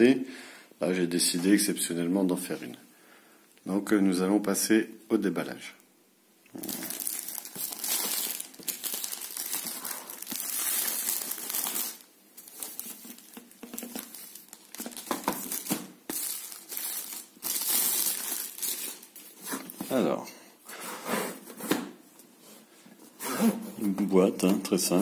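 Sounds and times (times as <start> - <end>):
plastic wrap crinkling and tearing: 6.5 - 19.8.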